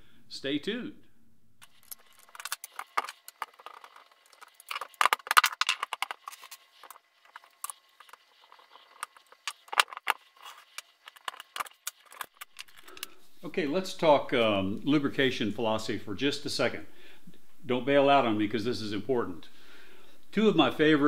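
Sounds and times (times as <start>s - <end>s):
metal rifle parts clicking and clinking: 1.6s - 13.2s
tools on wooden bench: 1.6s - 13.2s.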